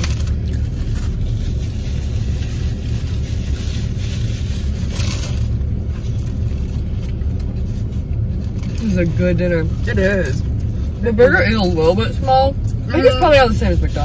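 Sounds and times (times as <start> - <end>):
soft rustle: 0.0 - 9.2
car engine idling: 0.0 - 14.0.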